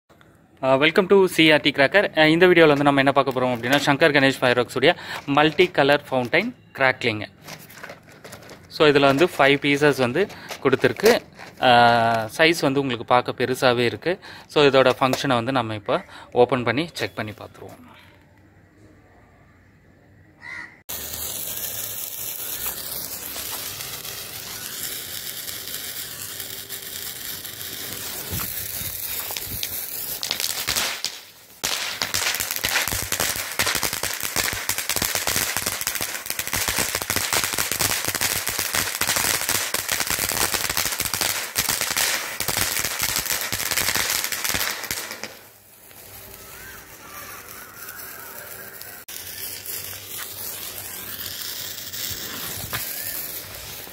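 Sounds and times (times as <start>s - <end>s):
firework fountain hissing sparks: 1.2s - 12.8s, 20.9s - 53.9s
rapid crackling pops: 7.5s - 12.3s, 20.9s - 53.9s.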